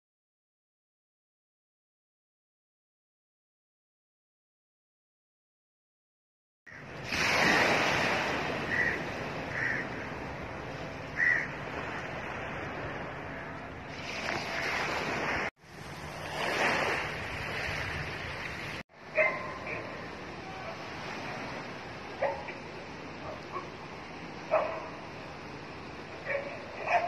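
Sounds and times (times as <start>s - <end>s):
waves washing onto beach: 6.8s - 27.0s.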